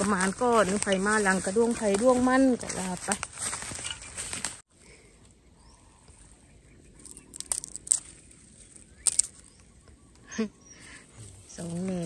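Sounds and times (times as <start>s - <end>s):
bamboo stems snapping: 7.0s - 9.7s.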